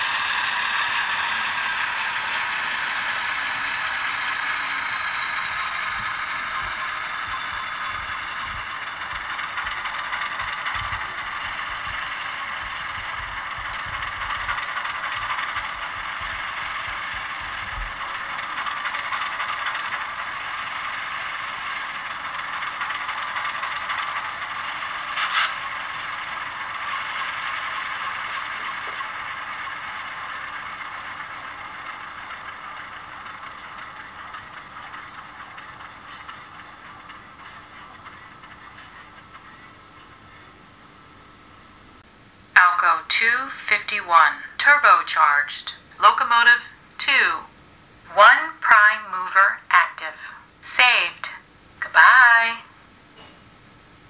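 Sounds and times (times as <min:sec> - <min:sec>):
diesel engine idling through small speaker: 0:00.0 - 0:40.9
sharp click: 0:25.2 - 0:25.6.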